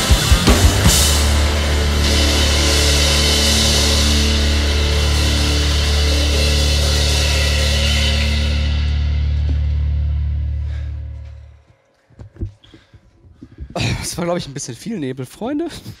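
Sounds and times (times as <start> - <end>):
washing cymbals: 0.0 - 9.3
rock band holding final chord: 0.0 - 10.9.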